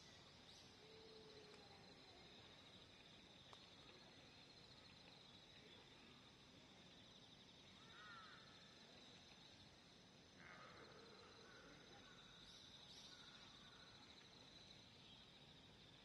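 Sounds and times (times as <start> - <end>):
high insect trill: 7.1 - 8.8.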